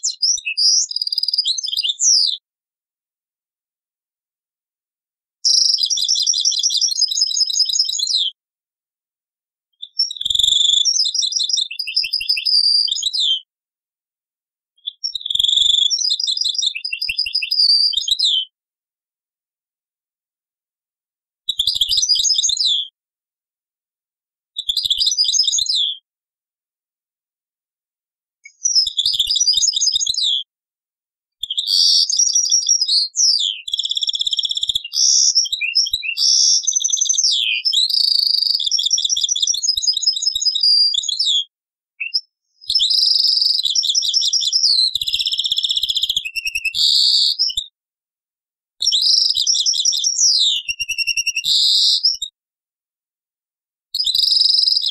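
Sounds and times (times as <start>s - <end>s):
goldfinch twittering song: 31.5s - 41.3s, 49.0s - 52.1s.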